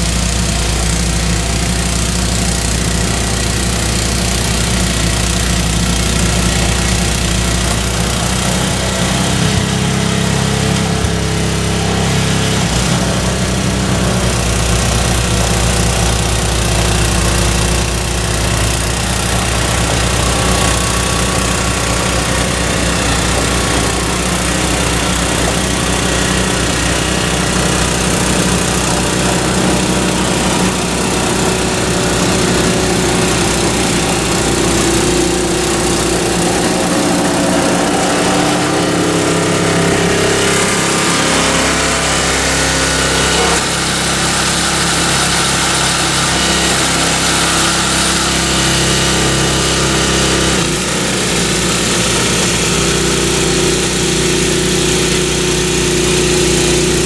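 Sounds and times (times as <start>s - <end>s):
snowblower engine running: 0.0s - 57.0s.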